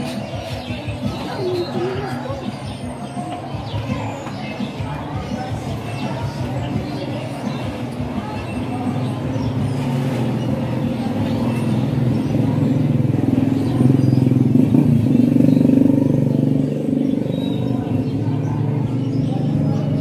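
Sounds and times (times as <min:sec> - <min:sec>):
vehicle engine running: 0:09.4 - 0:20.0.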